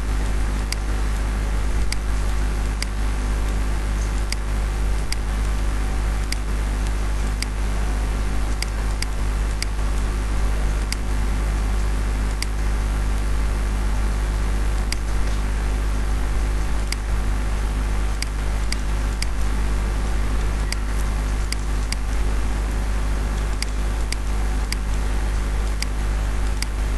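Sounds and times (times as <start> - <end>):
low electrical hum and hiss: 0.0 - 26.9
mouse clicks: 10.9 - 11.1, 16.8 - 17.1, 18.2 - 19.4, 20.6 - 22.2.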